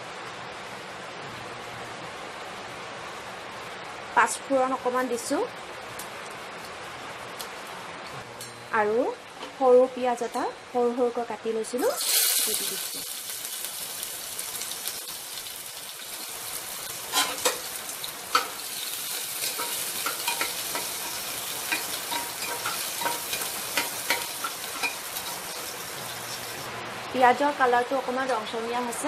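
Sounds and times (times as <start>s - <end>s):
onion sizzling in hot oil: 11.7s - 28.2s.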